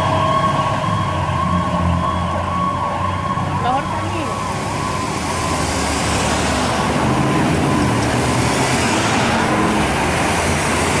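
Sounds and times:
faint fire engine siren: 0.0s - 11.0s
traffic and engine rumble: 0.0s - 11.0s.

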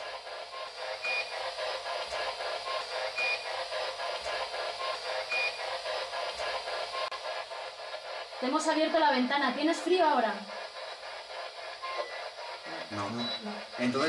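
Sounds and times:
choppy radio static: 8.4s - 14.0s.

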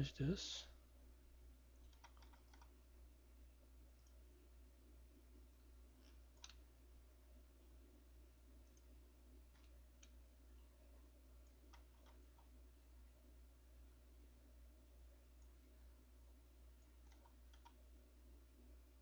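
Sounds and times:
low steady hum: 0.0s - 19.0s
computer mouse clicks: 1.7s - 2.8s, 3.9s - 4.2s, 6.0s - 6.6s, 8.6s - 8.9s, 9.5s - 10.2s, 11.4s - 12.5s, 16.8s - 17.8s.

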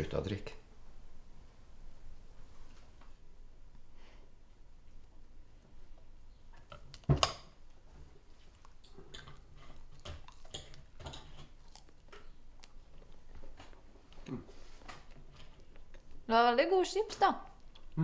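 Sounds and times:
person chewing food: 7.8s - 16.3s, 17.5s - 18.0s.

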